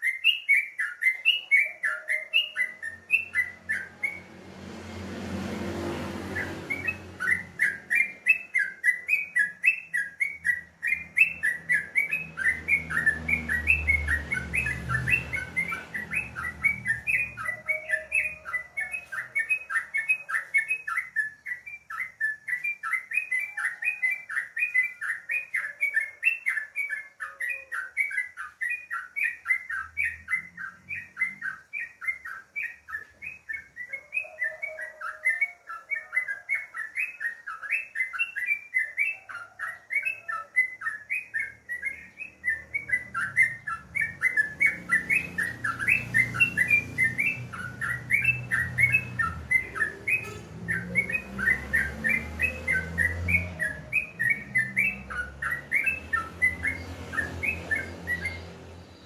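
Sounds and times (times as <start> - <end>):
bird chattering: 36.6 - 58.6.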